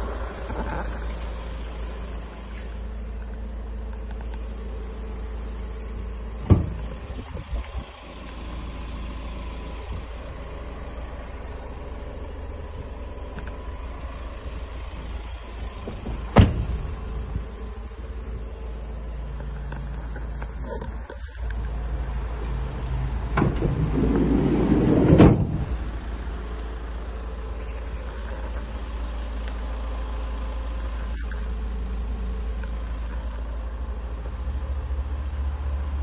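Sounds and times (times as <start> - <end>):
steady low rumble: 0.0 - 36.0
van door clunks: 6.4 - 7.8, 15.7 - 17.4, 23.0 - 26.4.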